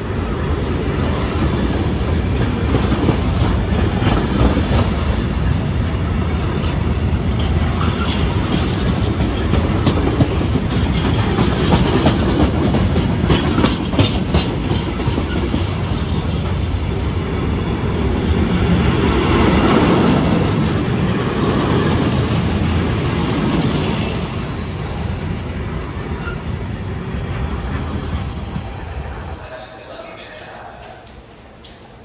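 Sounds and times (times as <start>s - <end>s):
train wheels rumbling on rails: 0.0s - 32.0s
wheels clicking over rail joints: 7.3s - 16.8s.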